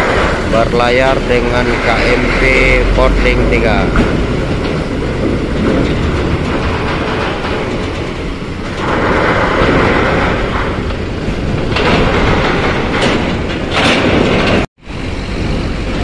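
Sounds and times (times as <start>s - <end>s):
bus engine rumbling past: 0.0s - 6.2s, 14.8s - 16.0s.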